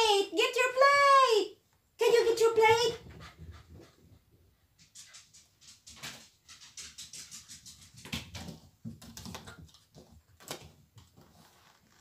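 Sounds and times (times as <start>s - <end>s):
small dog clicking and tapping: 4.7s - 11.2s.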